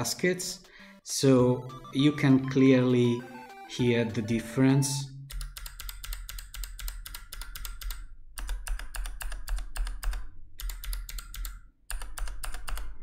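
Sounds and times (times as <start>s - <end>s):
clicky mechanical keyboard typing: 5.3s - 13.0s.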